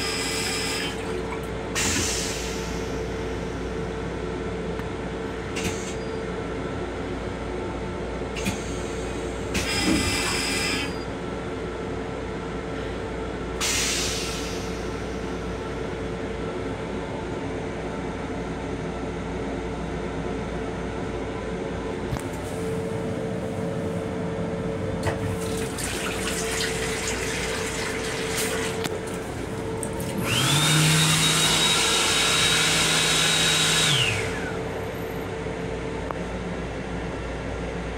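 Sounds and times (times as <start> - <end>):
toilet flushing water rush: 0.0 - 3.0, 25.0 - 34.6
flush mechanism whining: 0.0 - 3.5, 25.0 - 35.1
train hum: 11.2 - 30.7.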